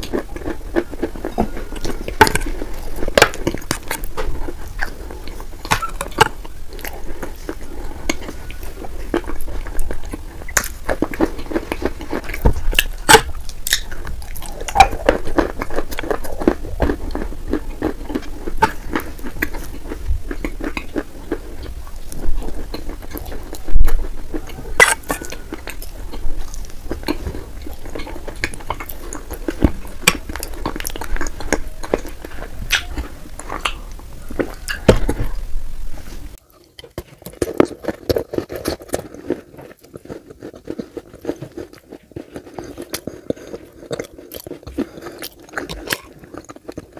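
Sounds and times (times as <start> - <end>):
wet chewing: 0.0 - 35.6, 36.3 - 46.9.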